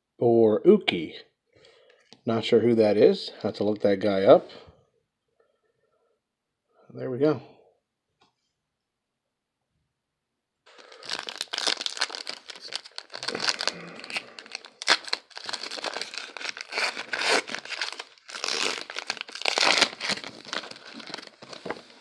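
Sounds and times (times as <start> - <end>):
foil wrapper crinkling: 10.7 - 22.0.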